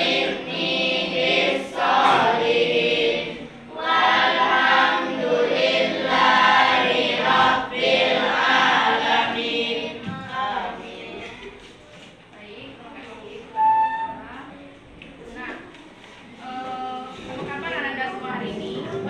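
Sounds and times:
children singing in unison: 0:00.0 - 0:11.6.

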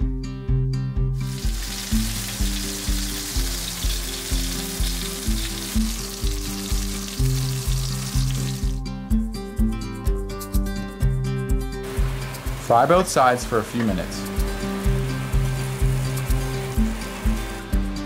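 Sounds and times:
background music with steady beat: 0:00.0 - 0:18.0
peppers sizzling in frying pan: 0:01.2 - 0:08.8, 0:11.8 - 0:18.0.

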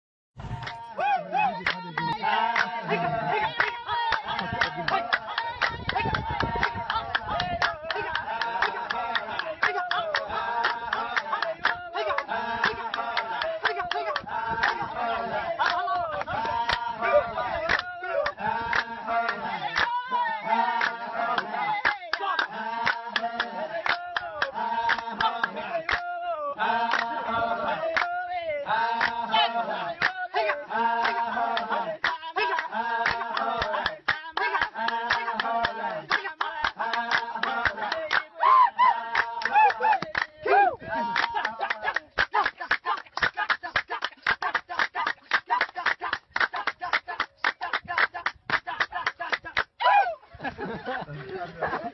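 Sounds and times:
albatross bill clapping: 0:01.6 - 0:16.9, 0:17.6 - 0:20.0, 0:29.0 - 0:29.2, 0:30.0 - 0:38.3, 0:39.1 - 0:40.4, 0:41.0 - 0:49.7.

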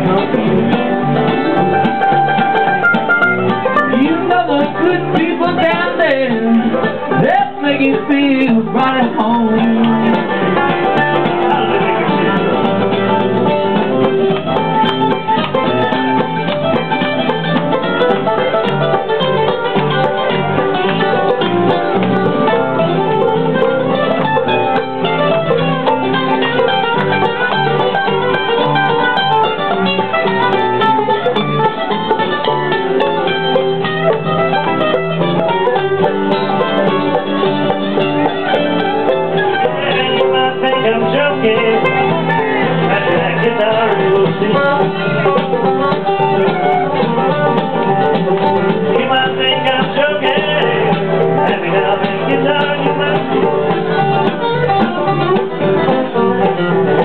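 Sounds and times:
banjo picking: 0:00.0 - 0:57.0
bluegrass band playing: 0:00.0 - 0:57.0
strummed acoustic guitar: 0:00.0 - 0:57.0.

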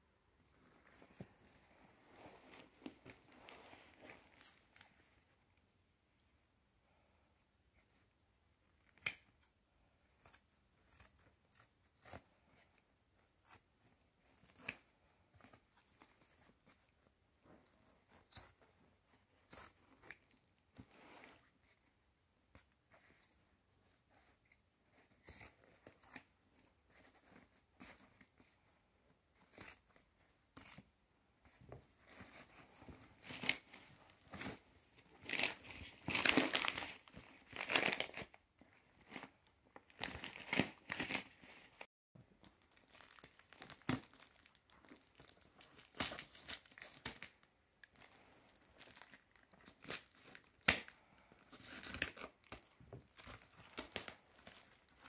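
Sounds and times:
paper and tape crinkling: 0:00.7 - 0:05.4, 0:31.5 - 0:55.0.

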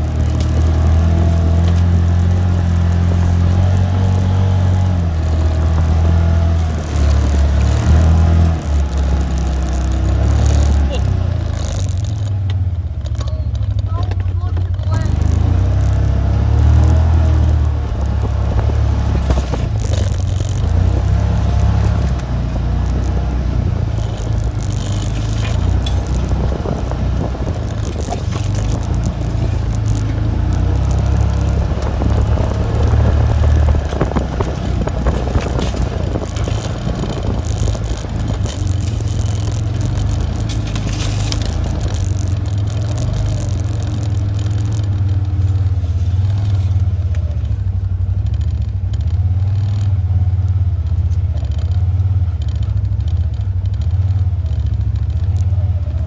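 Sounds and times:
loose rattling and scraping: 0:00.0 - 0:50.1
vehicle engine droning: 0:00.0 - 0:56.0.

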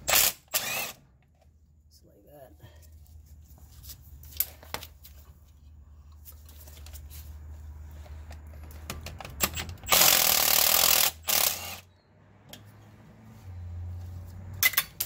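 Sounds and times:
cordless ratchet running: 0:09.8 - 0:11.8.

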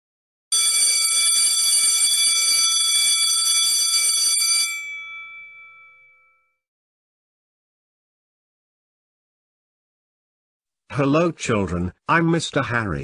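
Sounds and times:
electric bell ringing: 0:00.5 - 0:06.6.

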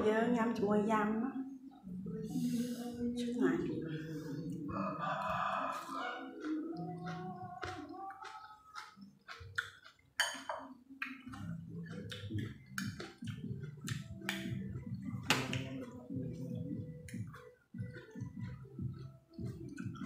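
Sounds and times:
wet chewing and mouth clicks: 0:04.0 - 0:20.0
spoon clinking on ceramic bowl: 0:10.2 - 0:10.7.

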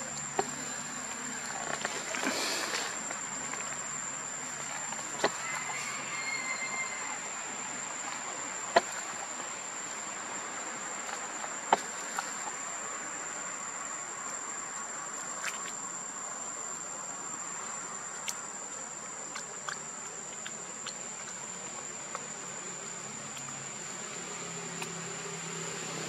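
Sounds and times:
high-pitched insect drone: 0:00.0 - 0:08.1.

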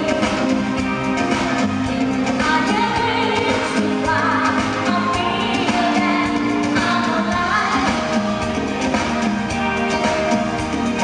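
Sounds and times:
drum kit: 0:00.0 - 0:11.0
live pop band: 0:00.0 - 0:11.0
woman singing into a microphone: 0:02.3 - 0:08.5.

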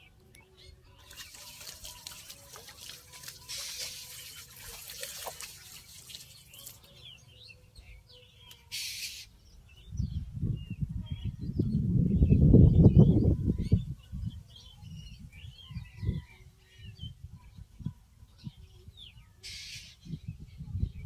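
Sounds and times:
small birds chirping: 0:00.0 - 0:11.8
trickling water: 0:00.9 - 0:07.0.

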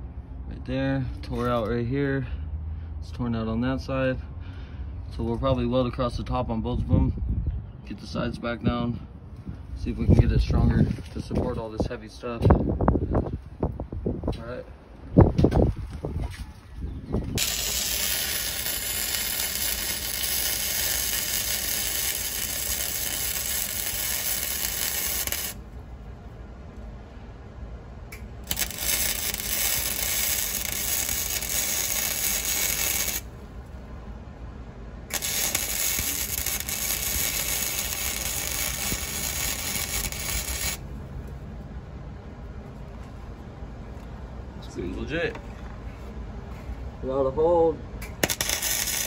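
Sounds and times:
arc welding crackling hiss: 0:17.4 - 0:25.6, 0:28.4 - 0:33.3, 0:35.1 - 0:40.9, 0:48.2 - 0:49.0.

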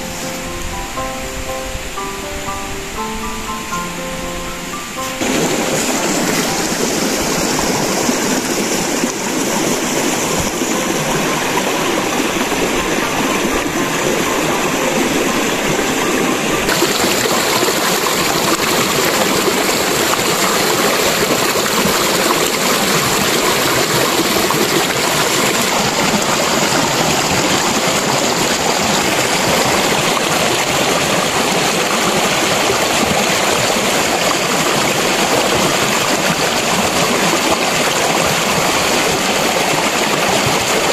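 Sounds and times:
stream rushing over rocks: 0:00.0 - 0:40.9.

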